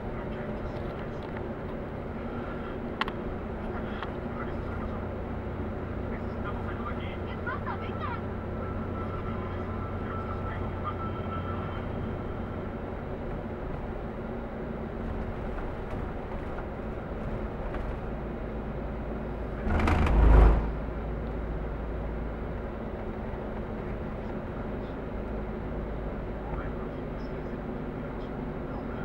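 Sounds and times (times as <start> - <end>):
vehicle engine and tyre drone: 0.0 - 29.0.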